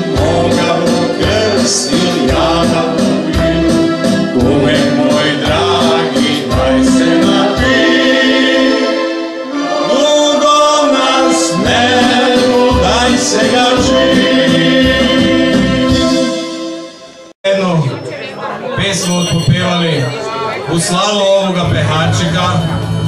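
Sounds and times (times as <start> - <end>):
several voices singing: 0.0 - 16.4
instrumental backing with steady beat: 0.0 - 17.4.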